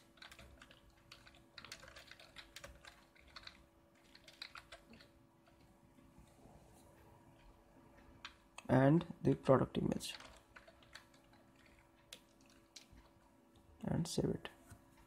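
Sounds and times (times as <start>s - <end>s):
typing on computer keyboard: 0.0s - 5.7s, 8.1s - 8.7s, 9.3s - 13.2s
low steady hum: 0.0s - 15.0s.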